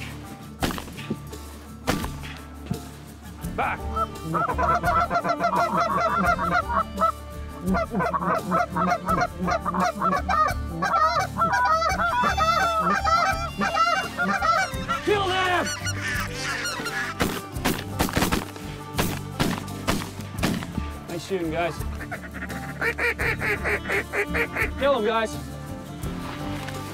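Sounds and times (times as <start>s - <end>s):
geese honking: 3.6s - 20.2s, 21.8s - 25.2s.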